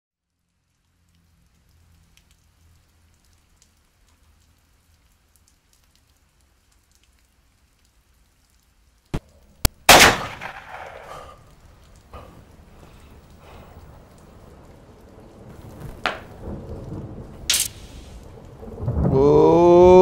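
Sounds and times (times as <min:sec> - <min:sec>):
rain hissing: 0:00.2 - 0:20.0
thunderclap: 0:09.9 - 0:11.5, 0:12.1 - 0:20.0.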